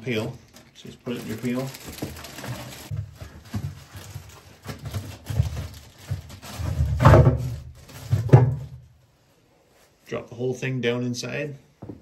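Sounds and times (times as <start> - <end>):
garbage bag rustling: 0.0 - 8.8
plastic pail knocking: 1.8 - 8.8.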